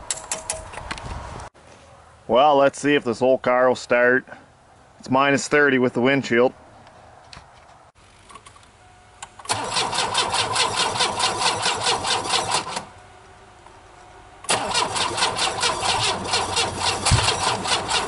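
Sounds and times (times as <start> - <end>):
car starter cranking engine: 9.2 - 12.9, 14.4 - 18.0.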